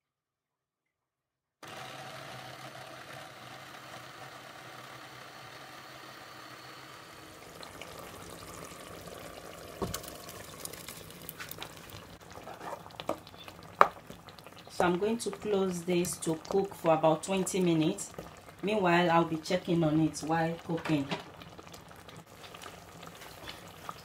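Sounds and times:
food processor motor humming: 0:01.6 - 0:08.8
peppers sizzling in hot oil: 0:05.9 - 0:24.0.

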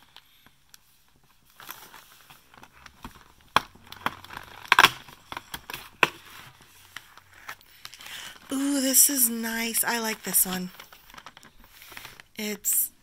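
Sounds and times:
cardboard clicks and crackles: 0:00.0 - 0:08.5, 0:10.6 - 0:12.3.

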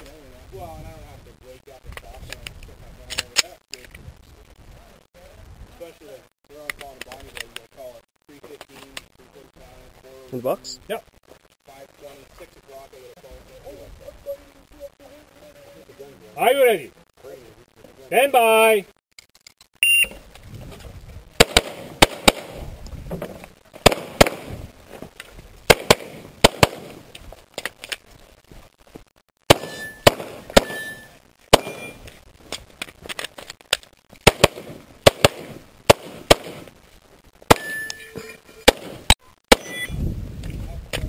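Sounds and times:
pistol shots: 0:21.4 - 0:22.6, 0:23.8 - 0:24.5, 0:25.7 - 0:27.0, 0:29.5 - 0:32.0, 0:34.3 - 0:36.7, 0:37.5 - 0:37.8, 0:38.7 - 0:39.9.

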